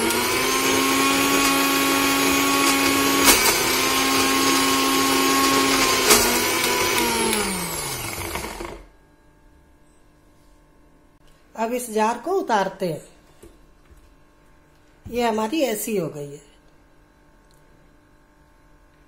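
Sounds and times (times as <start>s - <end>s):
mixer grinder motor running: 0.0s - 8.9s.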